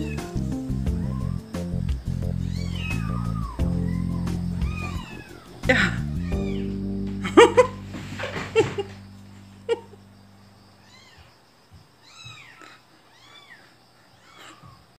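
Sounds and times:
cat meowing: 2.4s - 6.7s, 10.8s - 11.3s, 12.0s - 14.8s
kittens mewing high-pitched: 2.4s - 7.7s.

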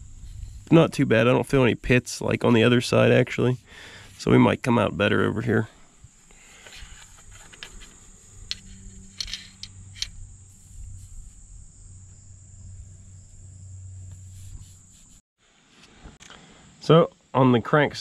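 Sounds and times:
low hum: 5.7s - 15.2s.

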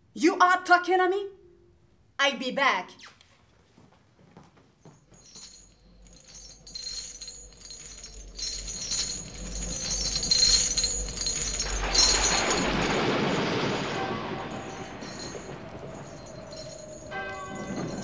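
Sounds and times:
shimmering tinkling chimes: 5.1s - 18.0s.

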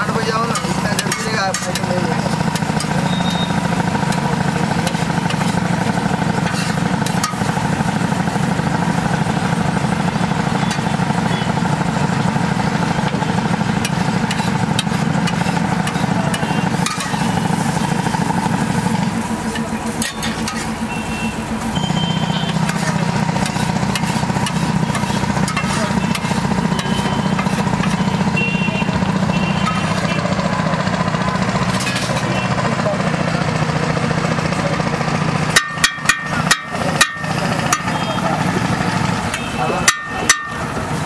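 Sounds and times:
low engine-like hum: 0.0s - 41.0s
spatula scraping iron pan: 0.2s - 8.2s, 13.8s - 17.8s, 19.9s - 20.8s, 22.5s - 28.2s, 31.7s - 32.3s
metal taps on metal: 35.5s - 38.0s, 39.3s - 40.6s.

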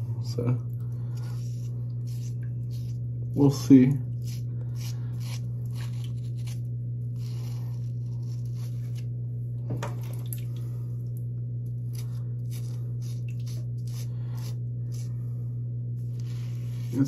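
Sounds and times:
steady low hum: 0.0s - 17.0s
razor scraping stubble: 1.1s - 9.1s, 11.9s - 15.2s, 16.0s - 17.0s.

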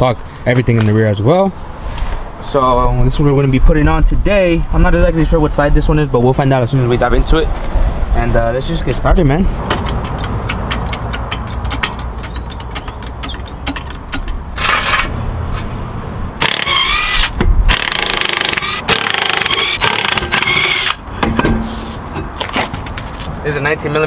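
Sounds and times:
impact wrench hammering: 16.4s - 21.7s.

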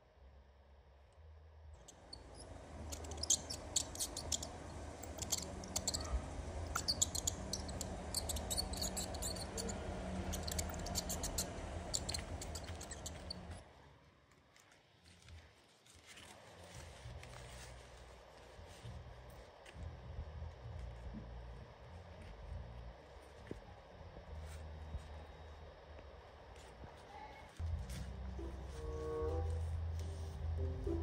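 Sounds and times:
low steady hum: 0.0s - 14.3s, 16.1s - 31.0s
mice scratching: 1.8s - 13.6s
mice squeaking: 1.8s - 13.6s.

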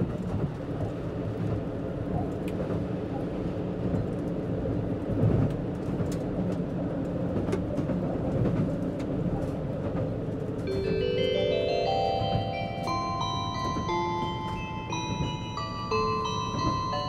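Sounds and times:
train wheels rumbling on rail: 0.0s - 17.0s
onboard chime melody: 10.7s - 17.0s.

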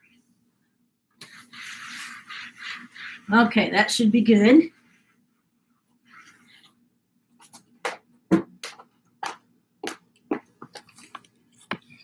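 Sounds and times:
rag wiping tiles: 1.2s - 5.3s, 6.0s - 6.8s.

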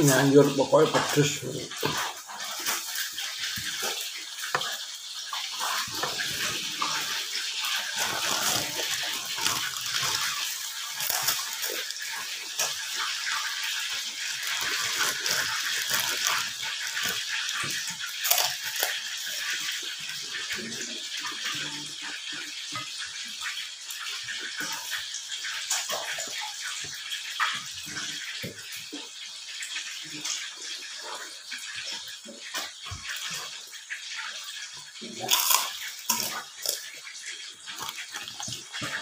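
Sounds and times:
wet chewing and mouth smacking: 5.4s - 19.5s, 35.2s - 37.0s, 37.7s - 39.0s
small clicks and crackles: 7.8s - 19.6s.

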